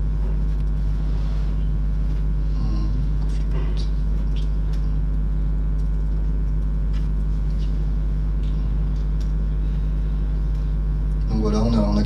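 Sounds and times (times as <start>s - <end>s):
low electrical hum: 0.0s - 12.0s
typing on laptop keyboard: 5.7s - 7.3s.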